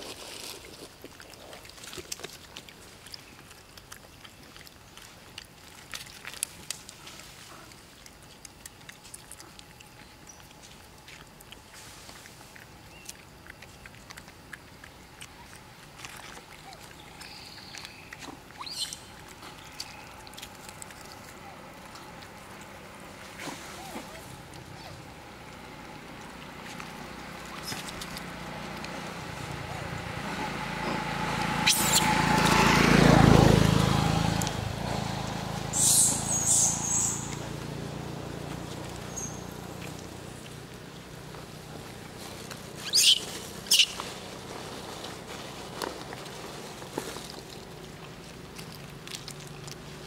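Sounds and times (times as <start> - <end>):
motorbike passing: 16.6 - 50.0.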